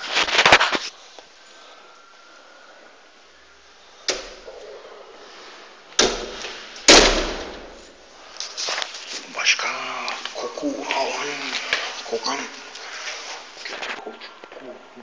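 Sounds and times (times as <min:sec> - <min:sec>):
sharp impacts: 0:06.0 - 0:07.9.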